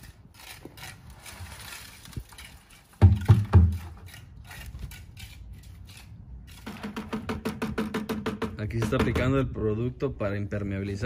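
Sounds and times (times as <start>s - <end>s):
wet concrete scraping and slopping: 0.0s - 6.9s.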